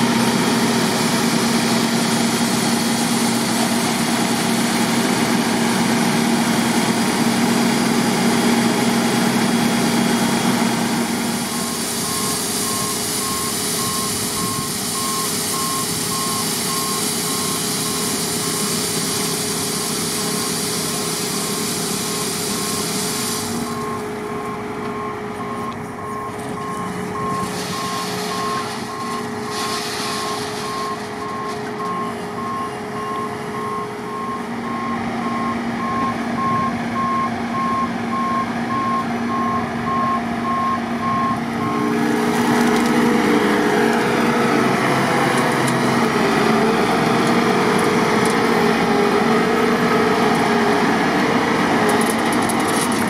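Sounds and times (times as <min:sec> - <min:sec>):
diesel engine running: 0:00.0 - 0:53.0
back-up alarm beeping: 0:24.9 - 0:29.3.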